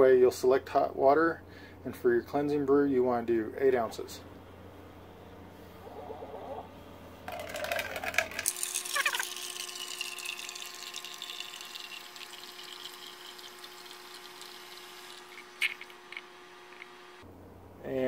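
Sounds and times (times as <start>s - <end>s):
light pump hum: 3.6s - 17.3s
water pouring into a cup: 7.3s - 16.0s.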